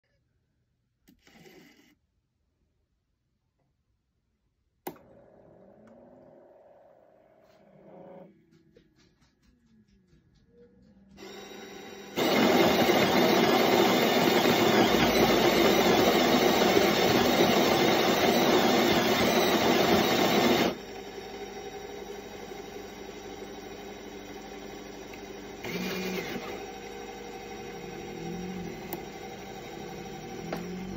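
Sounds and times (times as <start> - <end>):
coffee machine motor hum: 4.9 - 8.8, 11.1 - 30.9
grinder whirring: 4.9 - 30.9.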